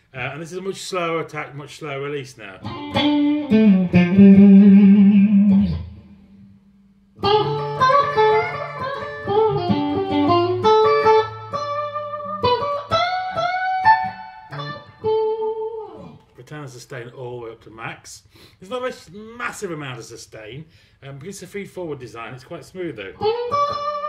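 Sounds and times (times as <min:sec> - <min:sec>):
clean electric guitar playing: 0:02.6 - 0:16.2, 0:23.1 - 0:24.0.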